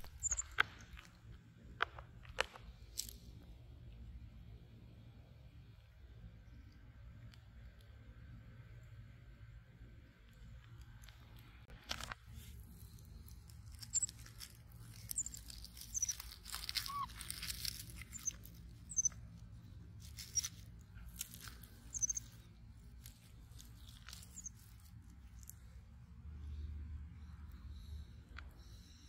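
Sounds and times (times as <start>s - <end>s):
low steady hum: 0.0s - 29.0s
short high chirps: 21.9s - 22.2s.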